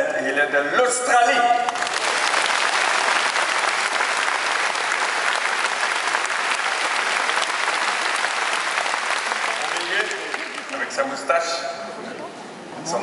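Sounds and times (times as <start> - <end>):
audience applauding: 1.7 - 11.2.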